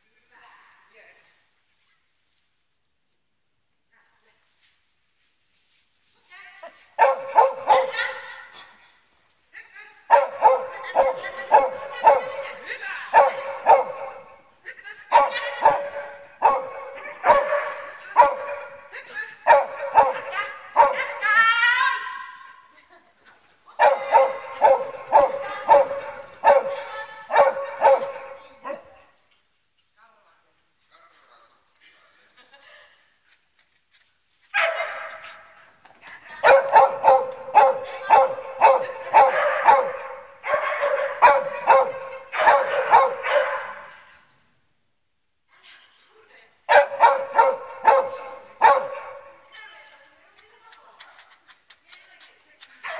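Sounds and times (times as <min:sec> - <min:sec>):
dog barking in a hall: 0:06.9 - 0:08.8, 0:10.1 - 0:22.7, 0:23.8 - 0:29.2, 0:34.5 - 0:44.2, 0:46.7 - 0:49.5.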